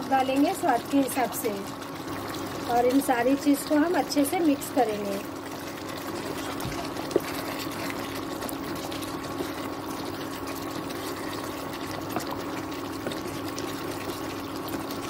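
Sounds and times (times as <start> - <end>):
gravy sizzling and bubbling: 0.0 - 15.0
wooden spoon stirring: 5.6 - 15.0.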